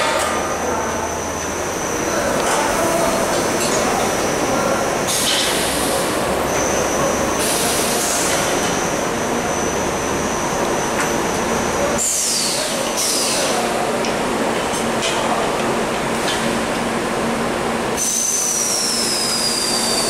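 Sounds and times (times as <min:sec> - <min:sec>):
high machine whine: 0:00.0 - 0:15.1, 0:15.8 - 0:20.0
hiss: 0:07.4 - 0:08.5, 0:12.0 - 0:13.6.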